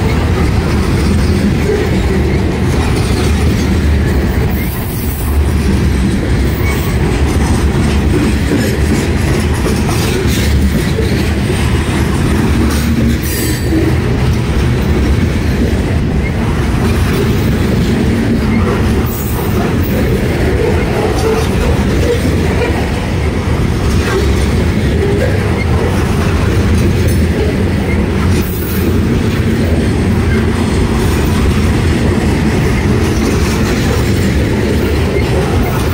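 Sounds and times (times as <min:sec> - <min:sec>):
freight train wheels on rails: 0:00.0 - 0:35.9.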